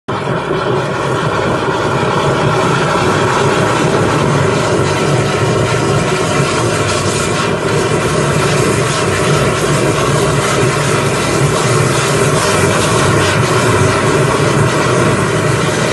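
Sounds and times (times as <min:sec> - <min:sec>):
pump engine droning: 0:00.1 - 0:15.9.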